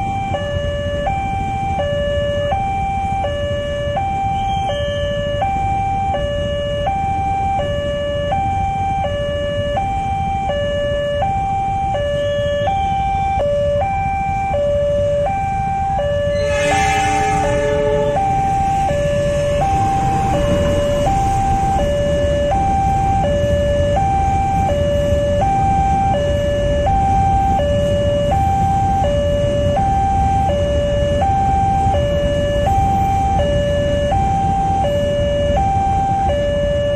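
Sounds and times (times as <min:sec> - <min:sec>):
low rumble of trains: 0:00.0 - 0:36.9
level crossing alarm two tones: 0:16.0 - 0:24.0
horn blast: 0:16.2 - 0:22.8.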